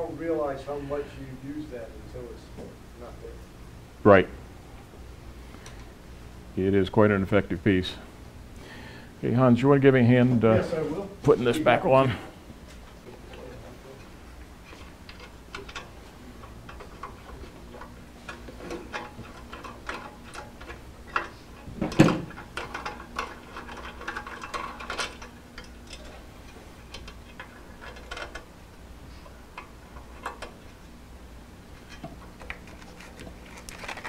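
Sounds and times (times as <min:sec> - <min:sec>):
metal clicks and knocks: 0:15.1 - 0:26.1, 0:26.8 - 0:28.5, 0:29.6 - 0:30.6.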